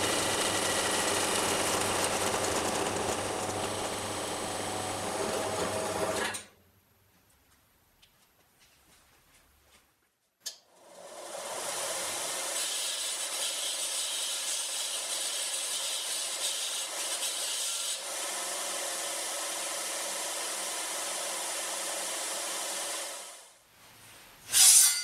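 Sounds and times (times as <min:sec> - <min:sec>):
belt sander running: 0:00.0 - 0:06.4, 0:10.8 - 0:23.5
steel tube sanded on belt: 0:12.6 - 0:18.0.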